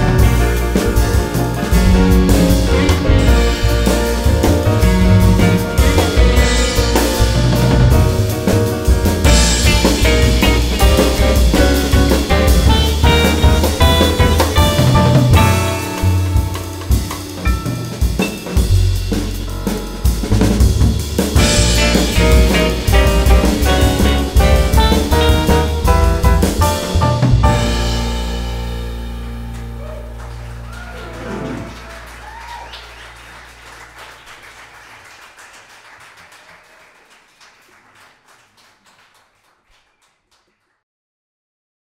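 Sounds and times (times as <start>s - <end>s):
drum hits: 0.0s - 28.7s
upright bass: 0.0s - 32.4s
grand piano runs: 0.0s - 35.1s
audience applauding: 29.5s - 40.8s.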